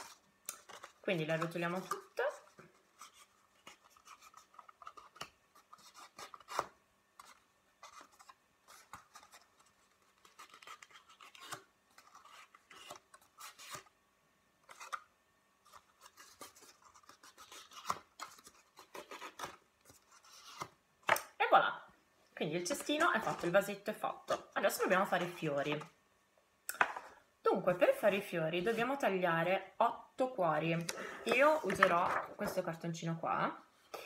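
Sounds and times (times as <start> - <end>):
cardstock rustling and scraping: 0.0 - 13.9, 14.6 - 15.0, 15.6 - 20.8, 22.6 - 25.9, 31.3 - 32.7.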